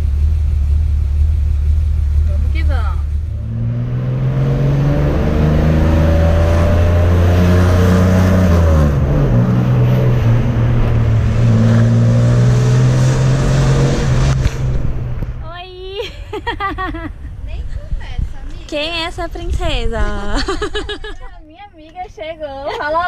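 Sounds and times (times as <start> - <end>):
car engine accelerating: 0.0 - 15.5.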